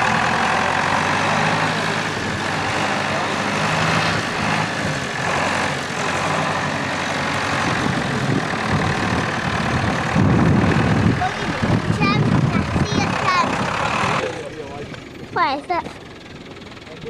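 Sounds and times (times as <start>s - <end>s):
tractor diesel engine running: 0.0s - 17.0s.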